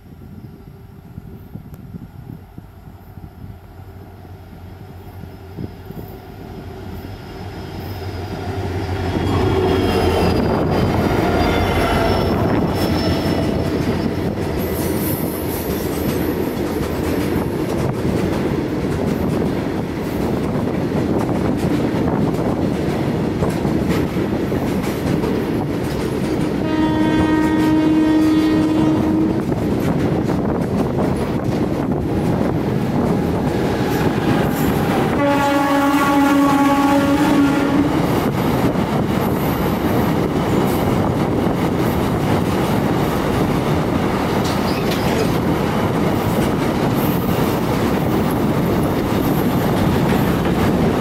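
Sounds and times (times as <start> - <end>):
diesel locomotive passing: 0.0 - 51.0
train horn: 11.0 - 13.7, 26.6 - 29.6, 33.8 - 38.1
wagons rattling over rails: 44.3 - 51.0.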